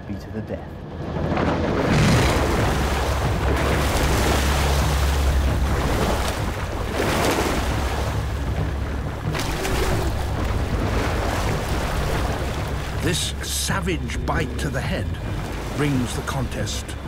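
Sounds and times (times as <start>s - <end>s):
deep rumble: 0.6s - 17.0s
heavy splashing and churning water: 0.8s - 17.0s.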